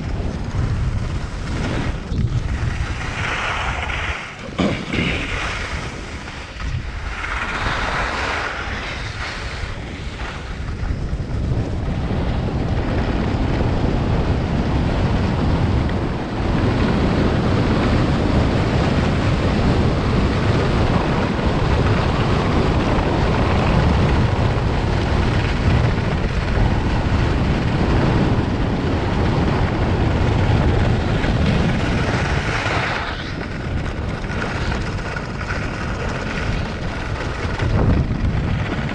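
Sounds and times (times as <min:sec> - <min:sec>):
wind on microphone: 0:00.0 - 0:38.9
skis hissing on snow: 0:02.7 - 0:06.5, 0:07.1 - 0:10.5.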